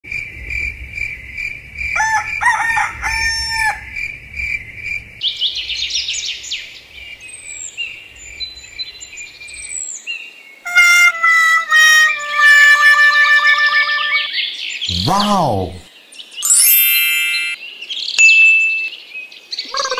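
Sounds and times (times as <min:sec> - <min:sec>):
songbirds singing: 0:00.1 - 0:10.8, 0:14.0 - 0:19.9
rooster crowing: 0:02.0 - 0:04.0
bird chirps: 0:04.6 - 0:10.3, 0:16.2 - 0:19.9
held pitched notes tune: 0:10.7 - 0:14.3.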